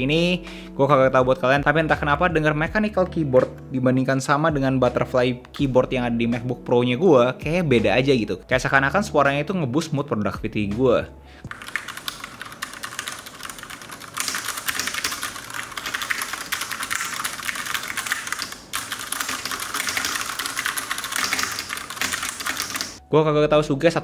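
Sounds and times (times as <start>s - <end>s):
fast typing on mechanical keyboard: 11.5s - 23.0s.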